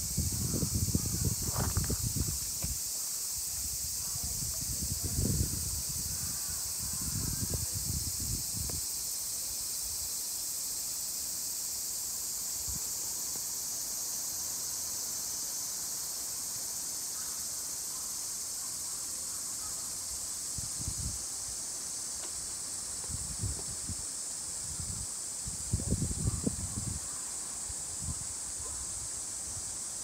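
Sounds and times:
cicada chorus drone: 0:00.0 - 0:30.0
low thumps on microphone: 0:00.6 - 0:02.8.

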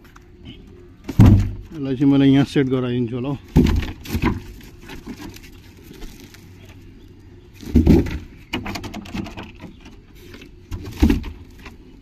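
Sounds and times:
object thump: 0:01.1 - 0:01.6.

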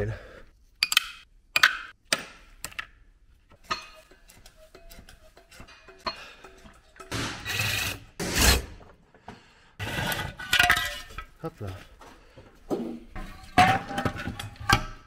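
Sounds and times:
metal tools clinking: 0:03.5 - 0:07.8
metal parts scraping and clattering: 0:03.5 - 0:09.0, 0:09.8 - 0:11.8, 0:12.7 - 0:15.0.

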